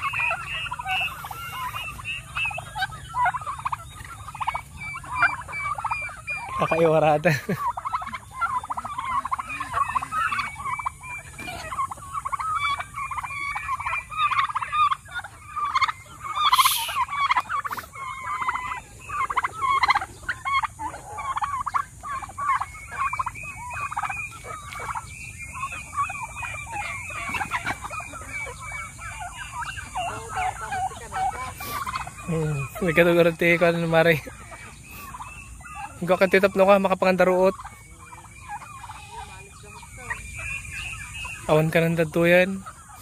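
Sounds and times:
turkeys gobbling: 0.0 - 43.0.

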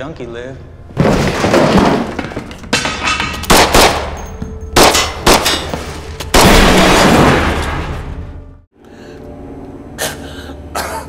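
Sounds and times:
fight crashes and hits: 1.0 - 3.9.

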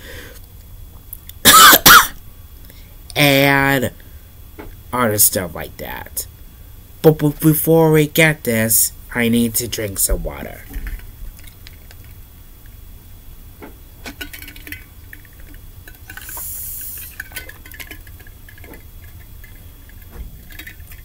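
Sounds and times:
short hiss from bottle: 16.2 - 17.2.

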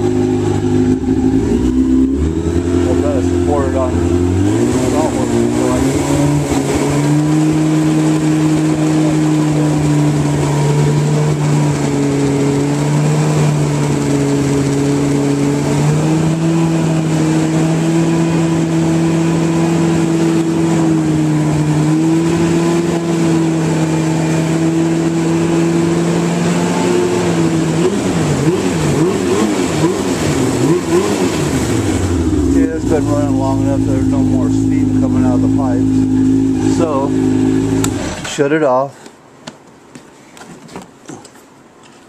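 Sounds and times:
snowmobile engine idling: 0.0 - 22.5, 27.3 - 38.4.

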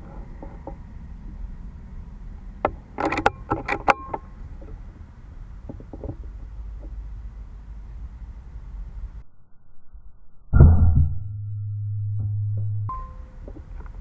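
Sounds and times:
steady low rumble: 0.0 - 3.0, 4.2 - 14.0
air rifle mechanical clicks: 3.0 - 4.2.

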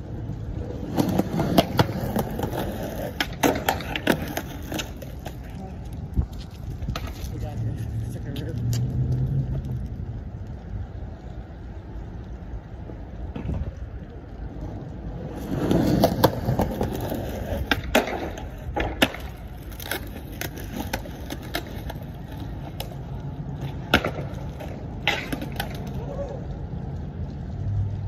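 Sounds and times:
skateboard wheels rolling: 0.0 - 28.0
skateboard clacking on metal ledge: 15.8 - 22.0, 23.7 - 26.0.

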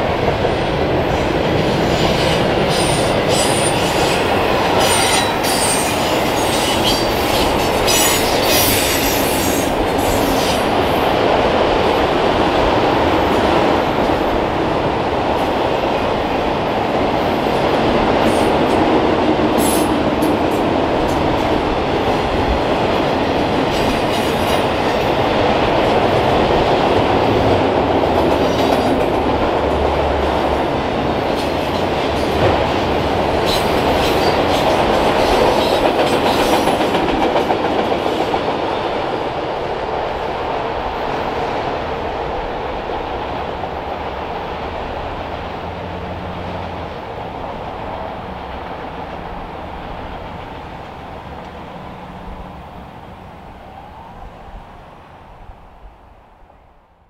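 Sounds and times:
freight train wheels clattering: 17.0 - 39.4.

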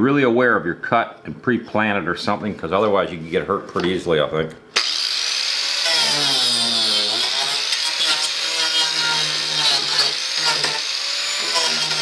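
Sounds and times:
angle grinder cutting wood: 4.8 - 12.0.

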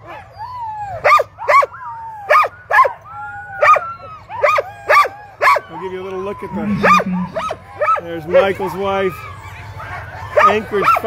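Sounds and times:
sled dogs barking: 0.0 - 11.0
dogs whining: 3.2 - 11.0.

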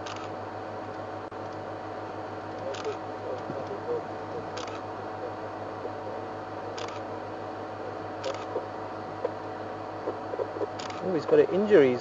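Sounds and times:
background hiss and hum: 0.0 - 12.0
camera shutter clicks: 2.7 - 3.0, 4.6 - 4.8, 8.2 - 8.5, 10.8 - 11.0.

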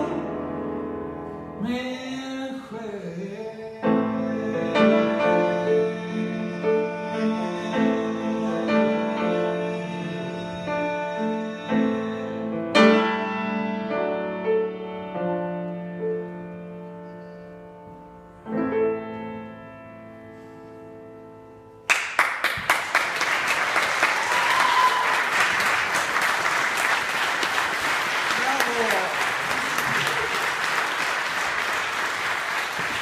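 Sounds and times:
grand piano chords: 0.0 - 21.9
audience applause: 21.9 - 33.0.

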